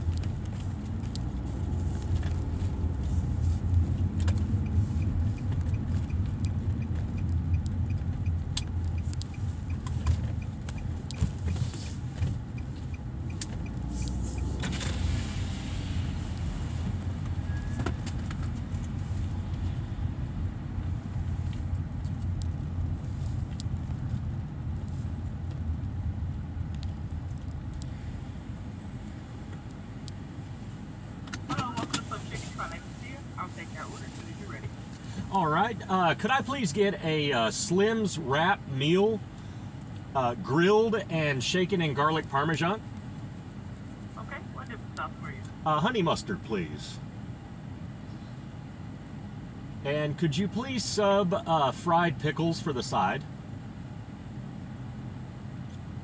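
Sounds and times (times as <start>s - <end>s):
car engine rumbling: 0.0s - 56.0s
faint regular ticking: 4.3s - 11.2s.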